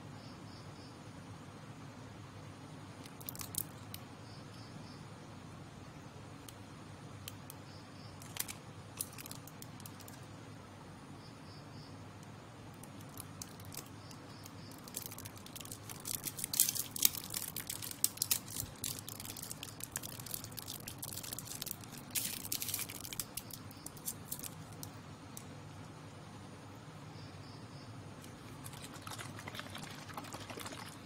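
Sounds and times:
plastic straw wrapper crinkling: 3.0 - 3.8, 8.2 - 10.2, 12.8 - 24.9, 28.2 - 31.0.

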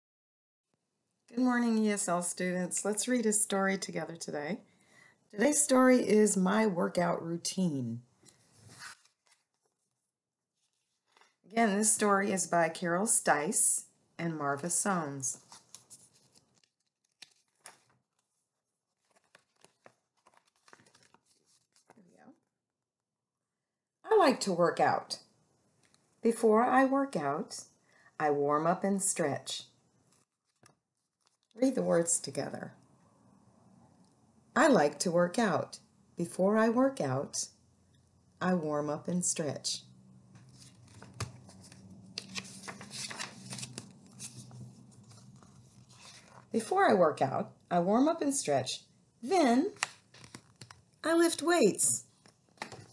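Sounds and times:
paper book rustling and tapping: 8.2 - 9.9, 10.6 - 11.4, 15.4 - 22.0, 30.1 - 31.6, 40.3 - 46.5, 49.8 - 50.9, 52.1 - 52.9.

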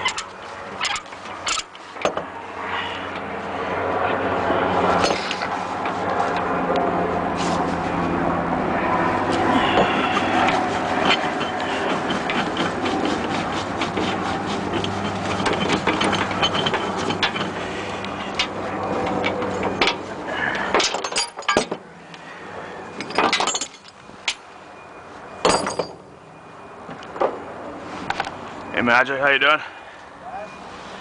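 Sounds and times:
steel chains clanking and rattling: 0.0 - 2.2, 9.6 - 20.0, 20.7 - 21.8, 23.0 - 24.4, 25.4 - 26.1
engine idling: 0.0 - 21.0.

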